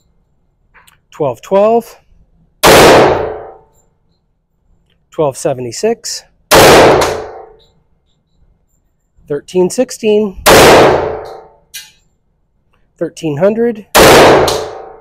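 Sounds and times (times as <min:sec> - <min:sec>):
loud pistol shots ringing indoors: 0:02.6 - 0:03.7, 0:06.5 - 0:07.6, 0:10.4 - 0:11.6, 0:13.9 - 0:15.0.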